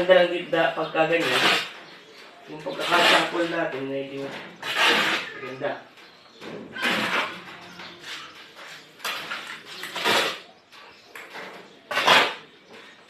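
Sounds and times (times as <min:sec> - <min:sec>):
shovel scraping concrete floor: 0:01.2 - 0:01.8, 0:02.7 - 0:03.6, 0:04.2 - 0:05.6, 0:06.7 - 0:10.5, 0:11.9 - 0:12.5.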